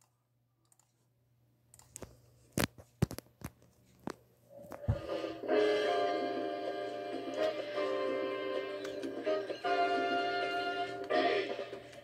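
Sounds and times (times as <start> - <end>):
music from computer: 4.8 - 12.0.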